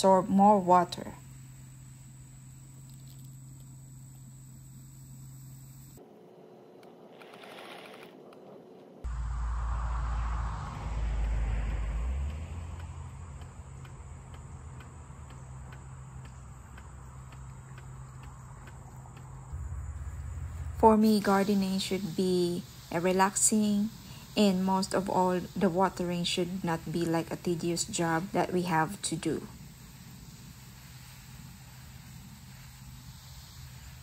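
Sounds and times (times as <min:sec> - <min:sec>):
insects chirping: 0:00.0 - 0:07.9, 0:09.0 - 0:34.0
low rumble on microphone: 0:09.0 - 0:25.2.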